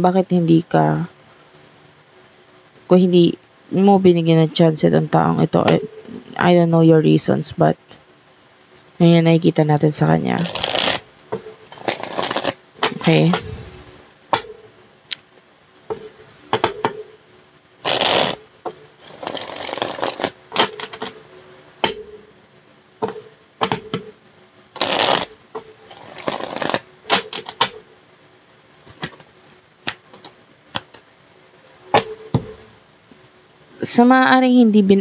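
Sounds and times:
cards shuffling: 10.4 - 11.0, 11.7 - 13.7, 19.0 - 21.1, 24.8 - 25.3, 25.9 - 27.6, 28.8 - 31.0
cards clicking and tapping: 28.9 - 31.0.

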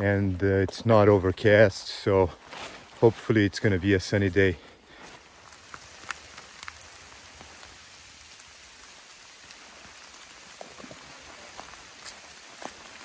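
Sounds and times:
light rain on forest canopy: 0.0 - 13.0
raindrops ticking: 4.9 - 13.0.

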